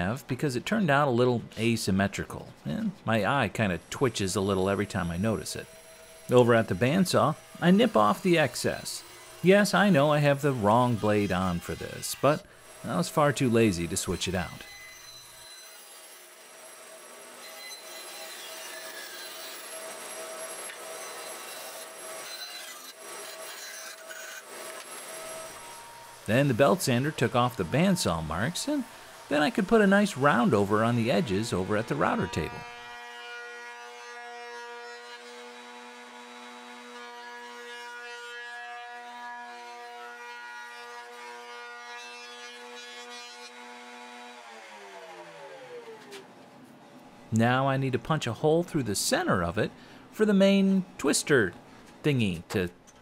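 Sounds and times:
bandsaw cutting wood: 0:04.0 - 0:46.3
saw whine: 0:04.3 - 0:32.9.

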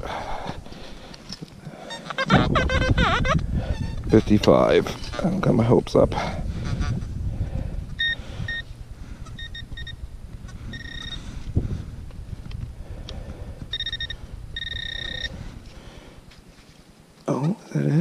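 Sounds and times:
low rumble: 0:02.3 - 0:16.3
metal detector beeping: 0:07.9 - 0:08.7, 0:09.3 - 0:11.4, 0:13.7 - 0:15.4.

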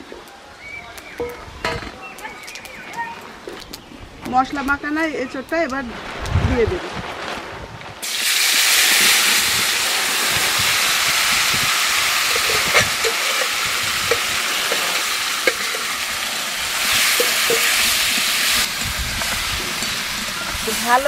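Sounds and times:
food sizzling in hot oil: 0:08.0 - 0:21.0.

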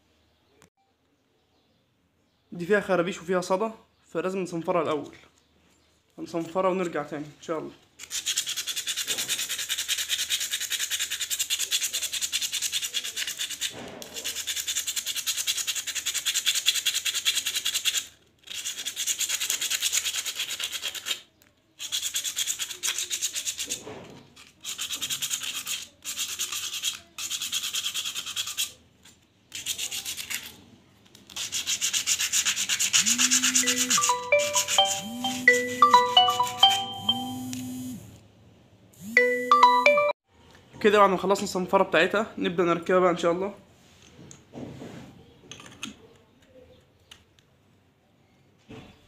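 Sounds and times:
sanding pad scratching metal: 0:31.3 - 0:37.9
plucked-sounding tune: 0:33.1 - 0:37.7, 0:39.2 - 0:40.1.

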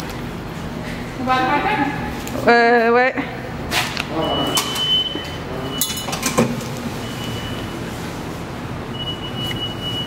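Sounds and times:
subway platform rumble: 0:06.7 - 0:10.0.

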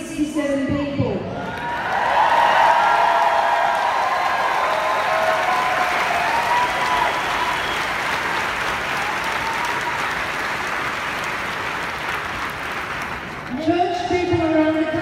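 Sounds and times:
crowd applauding: 0:01.4 - 0:13.6.

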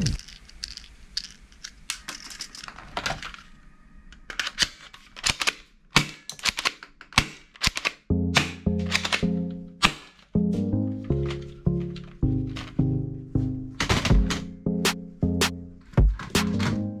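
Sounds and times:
plastic toy guns clicking: 0:04.2 - 0:10.4.

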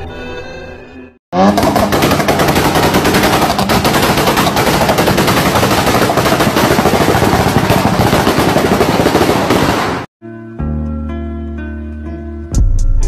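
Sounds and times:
rotary engine revving: 0:01.4 - 0:08.0
exhaust pops and crackles: 0:01.4 - 0:09.5.

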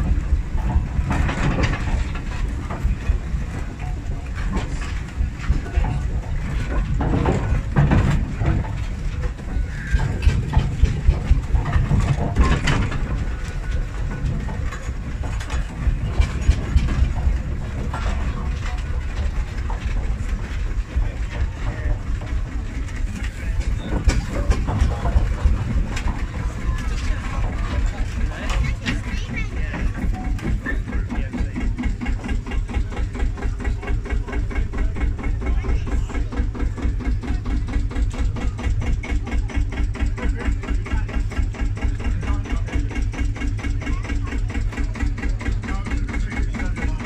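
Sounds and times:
clicks and knocks of moving parts: 0:00.0 - 0:47.0
steam engine rumbling: 0:00.0 - 0:47.0.

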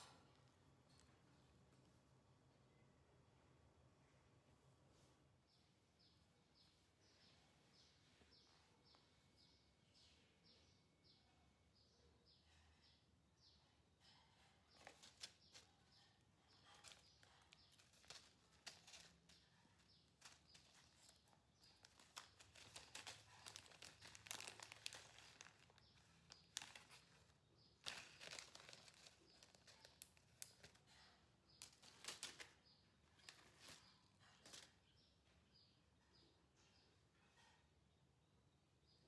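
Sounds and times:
crinkling and rustling: 0:14.3 - 0:35.0.

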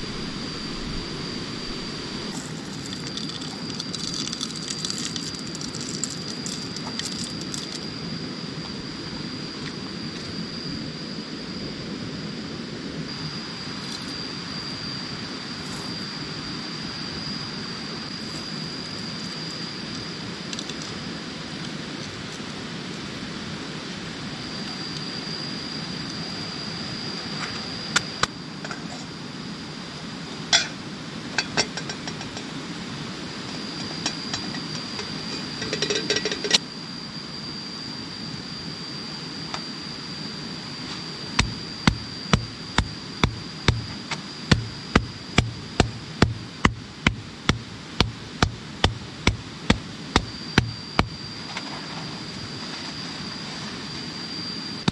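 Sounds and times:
stone pounding coffee beans: 0:41.4 - 0:51.1.

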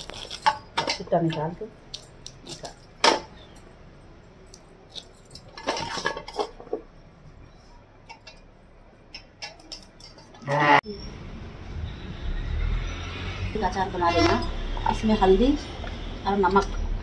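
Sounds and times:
brittle shells cracking: 0:00.0 - 0:01.0, 0:01.8 - 0:03.7.

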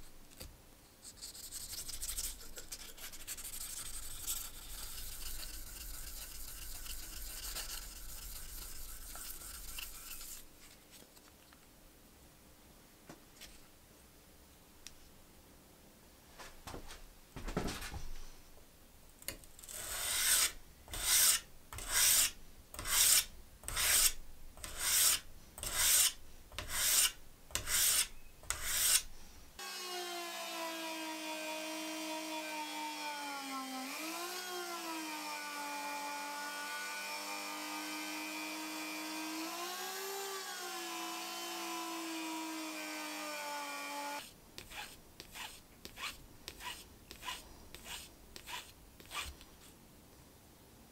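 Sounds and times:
blade stroking on abrasive pad: 0:01.4 - 0:10.5, 0:19.6 - 0:29.1, 0:44.1 - 0:49.3.

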